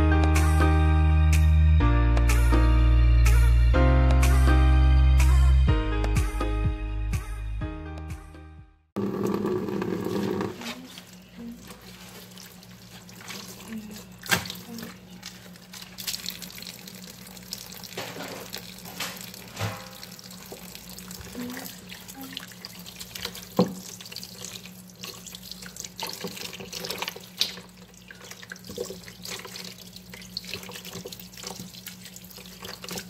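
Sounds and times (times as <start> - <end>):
water dripping: 11.0 - 33.0
knocks against basin: 19.0 - 20.1.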